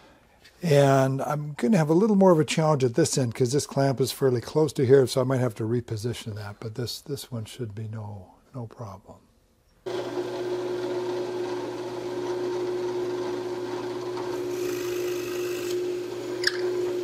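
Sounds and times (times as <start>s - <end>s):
drill press motor hum: 9.8s - 17.0s
drill bit cutting wood: 9.9s - 17.0s.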